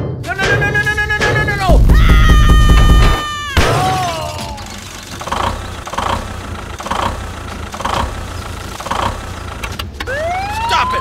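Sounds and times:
toy crashing: 0:00.4 - 0:08.2.

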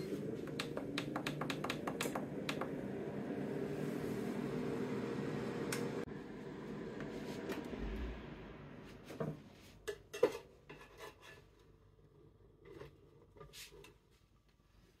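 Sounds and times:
air fryer fan hum: 0:00.0 - 0:09.6.

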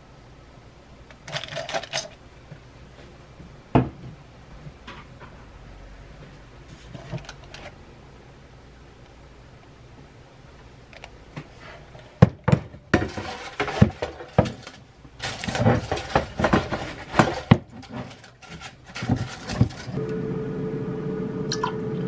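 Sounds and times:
kitchenware knocks and clatter: 0:12.2 - 0:20.0
rustling: 0:12.9 - 0:20.0.

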